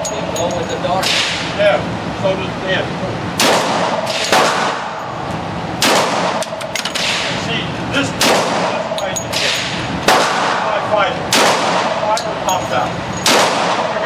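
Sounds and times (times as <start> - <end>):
pistol shots echoing indoors: 3.4 - 5.0, 5.8 - 7.3, 8.2 - 10.7, 11.3 - 12.1, 13.2 - 14.0.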